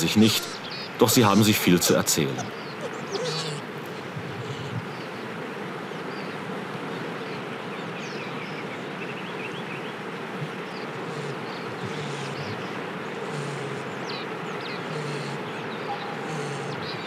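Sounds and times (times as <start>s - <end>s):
porcupines squeaking: 0.0s - 4.9s, 10.4s - 13.9s, 14.7s - 17.0s.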